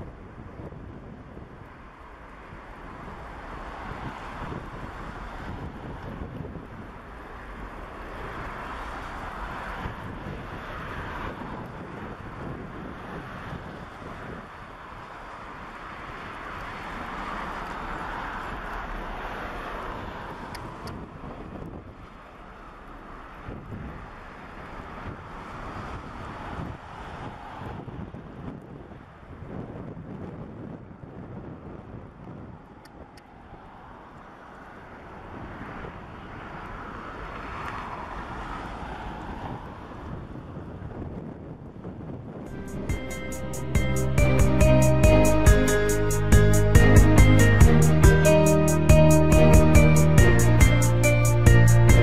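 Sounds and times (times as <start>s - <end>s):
wind buffeting microphone: 0.0s - 22.4s, 23.0s - 33.6s, 38.8s - 42.6s.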